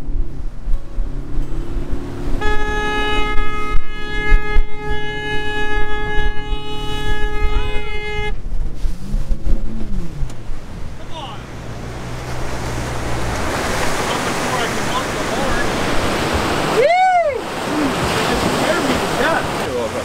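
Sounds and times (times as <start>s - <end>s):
water rushing: 0.0s - 20.0s
wind: 0.0s - 20.0s
steady horn blast: 2.3s - 10.2s
outboard motor running hard: 9.2s - 16.8s.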